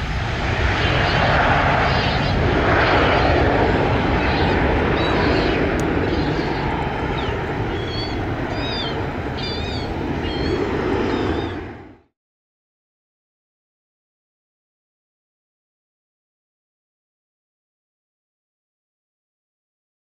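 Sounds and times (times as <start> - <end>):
jet engines rumbling at takeoff: 0.0 - 12.1
bird chirps: 5.0 - 11.6.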